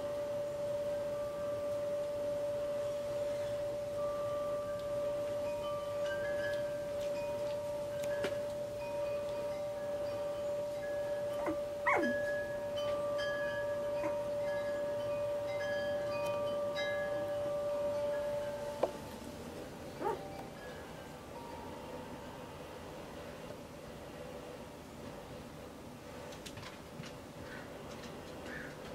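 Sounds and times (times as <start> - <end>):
chime-like notes: 0.0 - 23.3
held drone note: 0.0 - 23.3.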